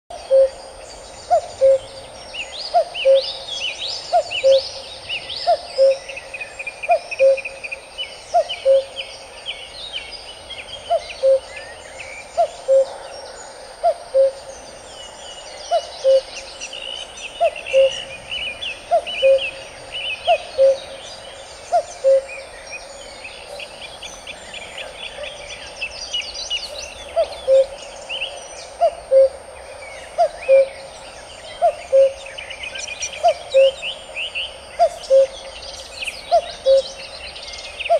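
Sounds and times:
songbirds chirping and trilling: 0:00.1 - 0:37.9
cuckoo calling: 0:00.2 - 0:00.6, 0:01.2 - 0:02.0, 0:02.7 - 0:03.4, 0:04.1 - 0:06.2, 0:06.9 - 0:07.6, 0:08.3 - 0:09.0, 0:10.9 - 0:11.6, 0:12.4 - 0:13.0, 0:13.8 - 0:14.5, 0:15.7 - 0:21.0, 0:21.6 - 0:22.5, 0:26.9 - 0:27.9, 0:28.7 - 0:29.4, 0:30.0 - 0:30.9, 0:31.6 - 0:34.0, 0:34.7 - 0:37.1.

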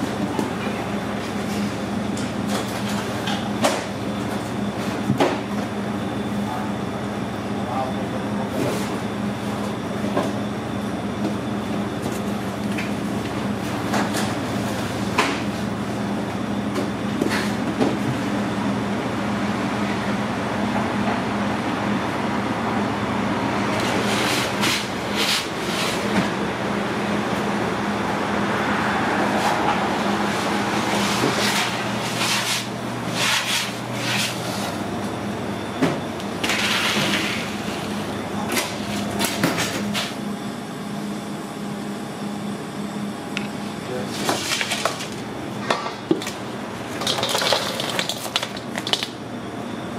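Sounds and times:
oven and ventilation hum: 0:00.0 - 0:49.9.

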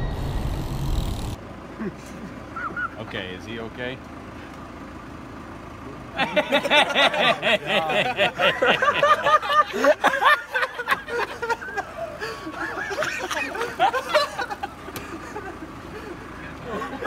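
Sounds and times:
car hum: 0:00.0 - 0:17.0
people laughing hard: 0:06.1 - 0:17.0.

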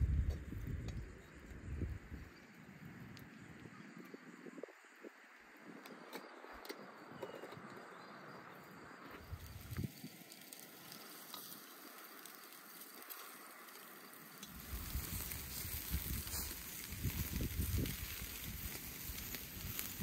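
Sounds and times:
skewers sizzling over charcoal: 0:08.8 - 0:20.0.

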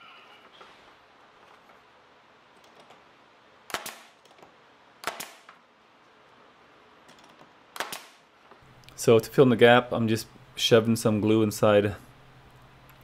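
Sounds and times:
nail gun firing: 0:03.7 - 0:04.3, 0:05.0 - 0:05.6, 0:07.7 - 0:08.3.

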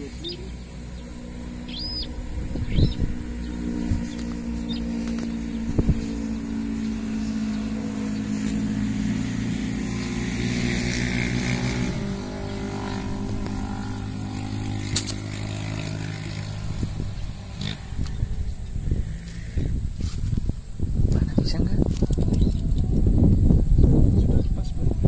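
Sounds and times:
engine running steadily: 0:00.0 - 0:25.0
sharp click: 0:14.9 - 0:15.2, 0:21.9 - 0:22.9.

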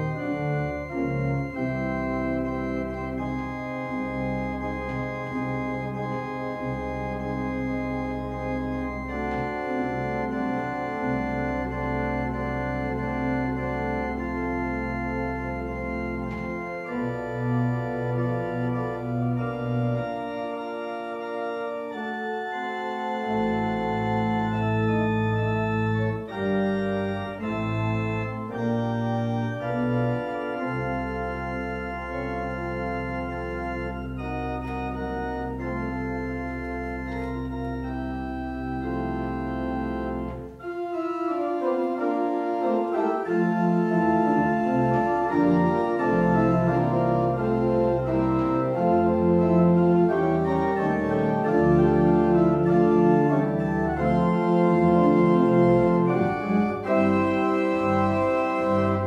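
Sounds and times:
church organ playing chords: 0:00.0 - 0:59.0.

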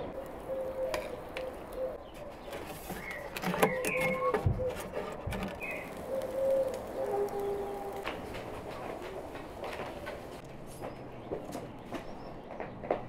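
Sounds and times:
dove cooing: 0:00.0 - 0:02.1, 0:03.0 - 0:09.4
birds calling: 0:00.0 - 0:13.0.

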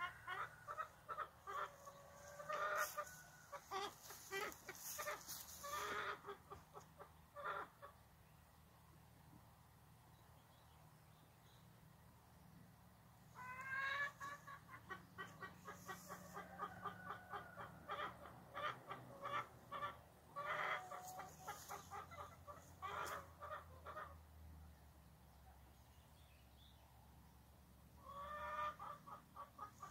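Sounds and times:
chickens clucking: 0:00.0 - 0:08.0, 0:13.4 - 0:24.2, 0:28.0 - 0:29.9.

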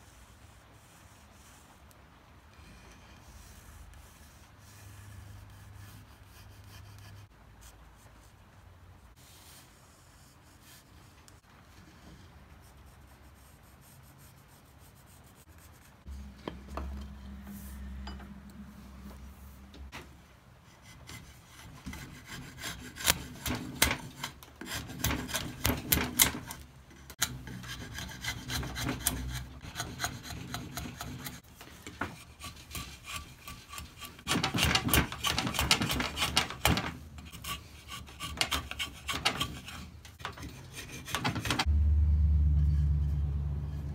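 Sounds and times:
low hum: 0:15.5 - 0:20.3, 0:41.7 - 0:43.9
wood rasp scraping: 0:20.7 - 0:41.7.

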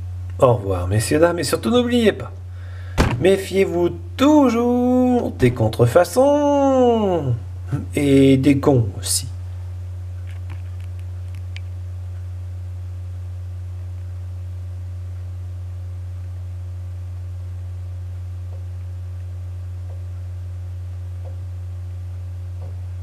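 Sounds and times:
low electrical hum: 0:00.0 - 0:23.0.

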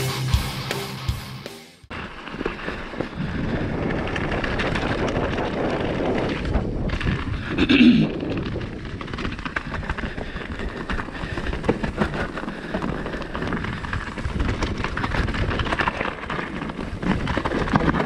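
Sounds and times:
bike rattling and knocking: 0:01.9 - 0:18.0
tyres crunching over loose stones: 0:01.9 - 0:18.0.

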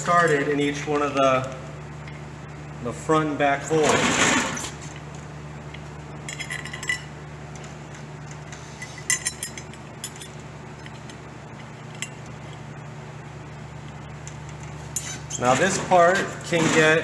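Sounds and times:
steady low hum: 0:00.0 - 0:17.0
metal parts clinking and rattling: 0:06.2 - 0:07.1, 0:08.8 - 0:11.2.

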